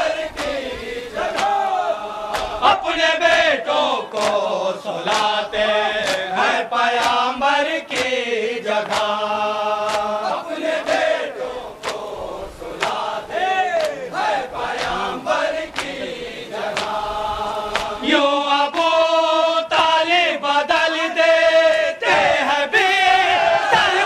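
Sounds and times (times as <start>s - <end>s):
chorus chanting: 0.0s - 24.0s
men chanting a lament: 0.0s - 24.0s.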